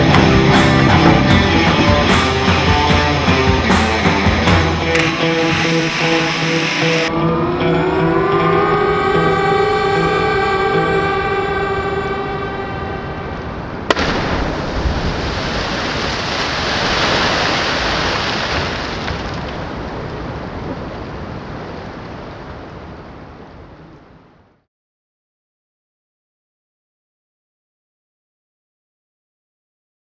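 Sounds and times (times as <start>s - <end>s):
sustained music tones: 0.0s - 14.6s
water splash: 13.9s - 20.2s.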